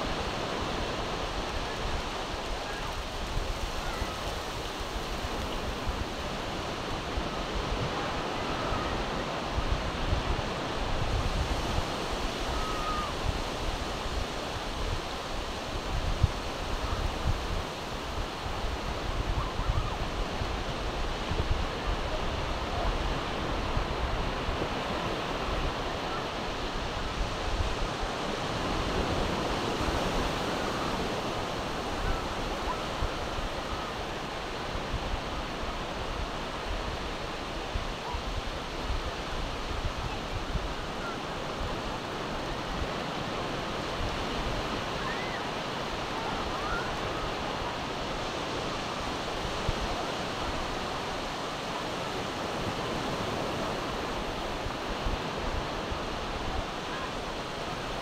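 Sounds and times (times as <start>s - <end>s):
wind buffeting microphone: 0.0s - 51.6s
surf washing onto beach: 0.0s - 58.0s.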